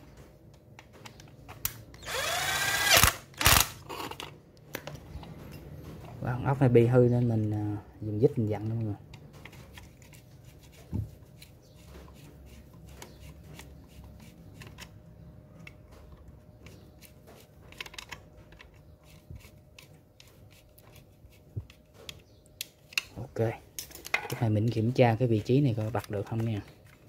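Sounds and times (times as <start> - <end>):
screwdriver clicking and scraping: 0.8 - 6.2, 8.7 - 15.0, 16.6 - 23.2.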